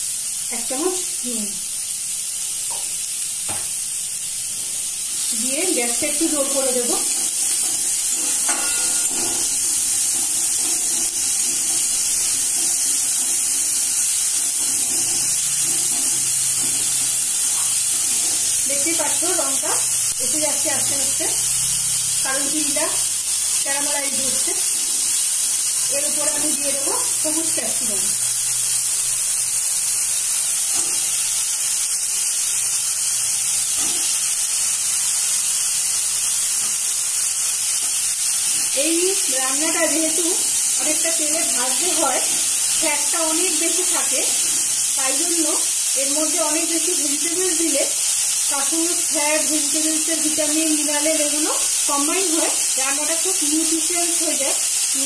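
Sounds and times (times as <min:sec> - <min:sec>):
onions sizzling in hot oil: 0:00.0 - 0:55.0
spatula stirring in wok: 0:04.6 - 0:19.4.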